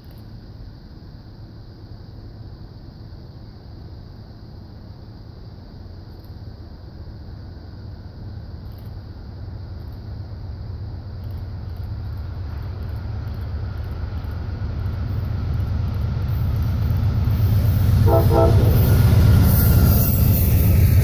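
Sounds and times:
train rumble: 0.0 - 21.0
passing train clatter: 9.6 - 21.0
locomotive horn taps: 18.1 - 18.9.

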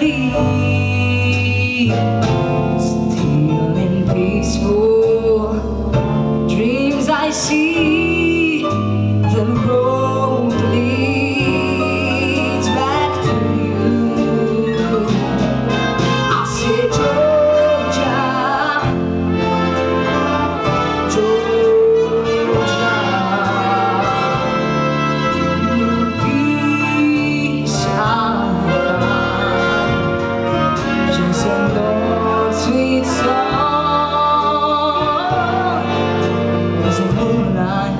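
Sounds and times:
woman singing into microphone: 0.0 - 2.2, 6.5 - 15.4, 16.3 - 19.1, 31.1 - 36.0.

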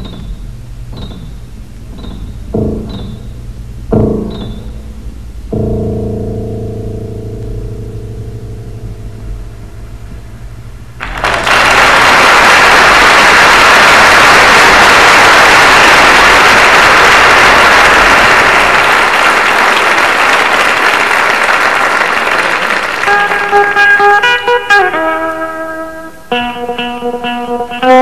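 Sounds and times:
guitar plucked notes: 0.0 - 11.0, 23.0 - 28.0
audience applauding: 11.0 - 24.3.

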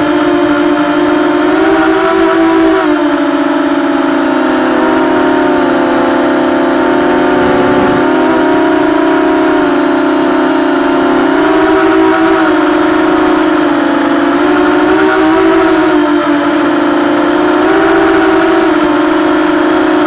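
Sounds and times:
drone motors whining: 1.6 - 16.0.

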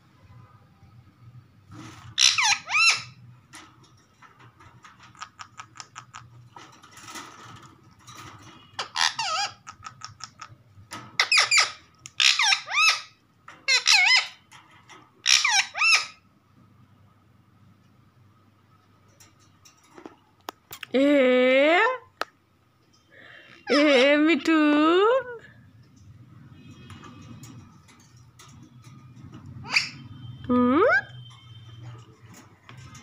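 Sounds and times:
parakeet screeching calls: 2.1 - 3.2, 8.8 - 10.4, 11.2 - 14.4, 15.2 - 16.2, 29.6 - 30.2.

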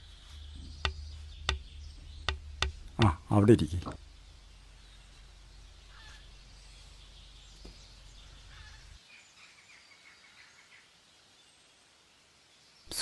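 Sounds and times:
low hum: 0.0 - 9.0
faint bird chirps: 0.0 - 13.0
soft knock: 0.6 - 3.2.

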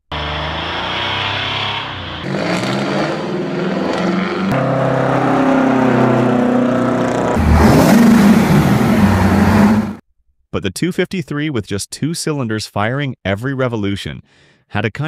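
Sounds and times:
heavy diesel truck engines: 0.0 - 10.0.

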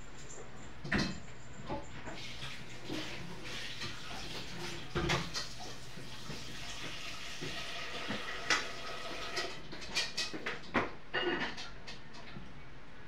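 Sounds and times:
water running at a sink: 2.1 - 9.7
dishes clinking: 11.1 - 12.0.

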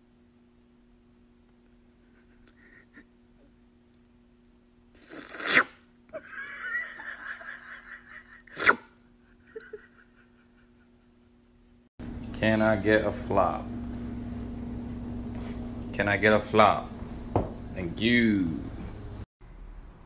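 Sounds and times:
person sneezing loudly: 8.5 - 8.9.

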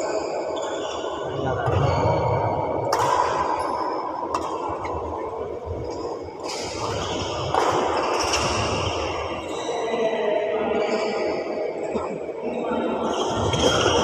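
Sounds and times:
racket hitting shuttlecock: 2.9 - 3.6, 6.5 - 8.8.

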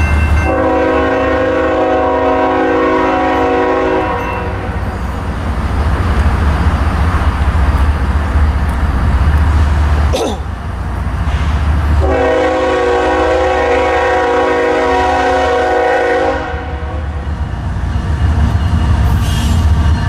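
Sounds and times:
deep locomotive rumble: 0.0 - 20.0
train rolling noise: 0.0 - 20.0
locomotive air horn: 0.4 - 4.8, 12.0 - 17.2.

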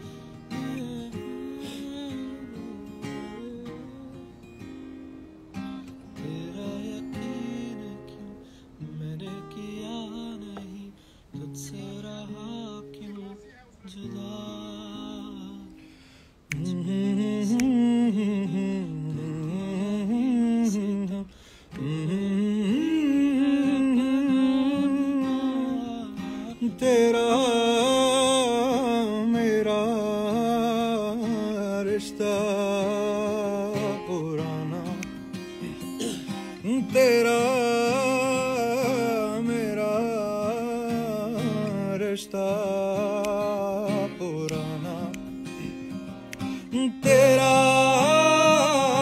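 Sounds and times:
acoustic guitar: 0.0 - 49.0
man humming: 34.5 - 38.9.

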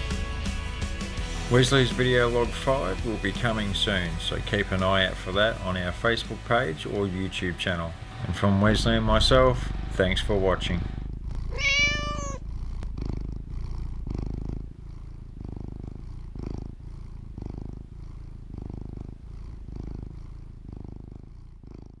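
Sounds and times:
cat purring: 0.0 - 22.0
cat meowing: 11.5 - 12.4.

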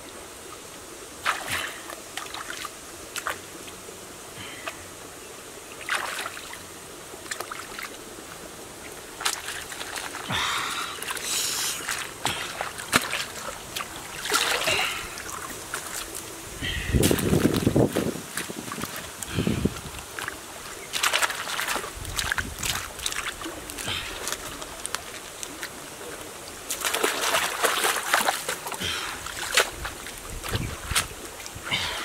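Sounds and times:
stream trickling: 0.0 - 32.0
water splashing and sloshing: 0.5 - 3.8, 5.7 - 32.0.

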